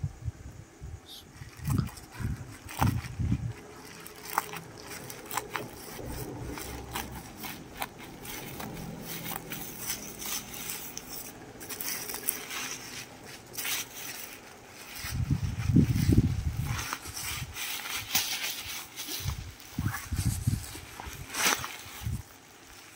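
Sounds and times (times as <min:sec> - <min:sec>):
plastic crinkling: 0:01.3 - 0:22.9
scissors cutting plastic: 0:01.4 - 0:15.3, 0:16.0 - 0:19.4.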